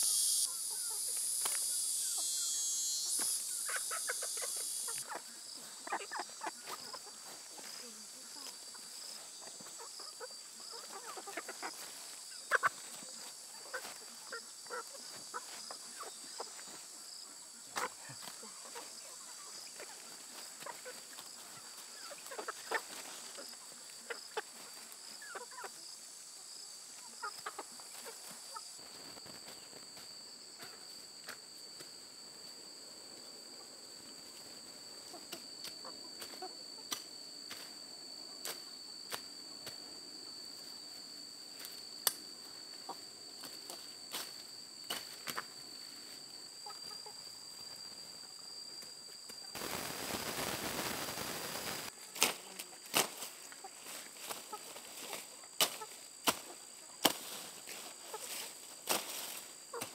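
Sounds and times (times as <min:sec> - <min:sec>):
insects chirring: 0:00.0 - 0:59.9
chickens clucking: 0:00.4 - 0:29.6, 0:46.6 - 0:47.3, 0:52.0 - 0:59.9.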